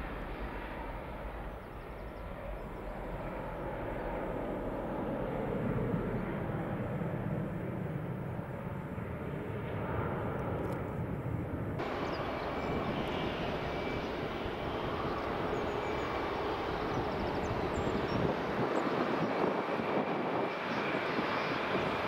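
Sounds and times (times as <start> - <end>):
jet engines running: 0.0 - 22.0
high engine whine: 11.8 - 22.0.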